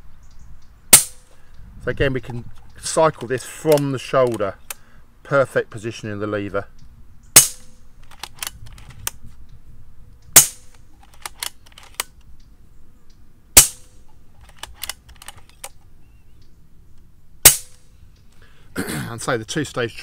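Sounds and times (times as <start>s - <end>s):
air rifle shot crack: 0.9s - 1.3s, 7.4s - 7.8s, 13.6s - 14.0s, 17.4s - 17.9s
rifle lever clicks: 3.1s - 4.8s, 7.4s - 9.2s, 10.4s - 12.3s, 14.4s - 15.8s.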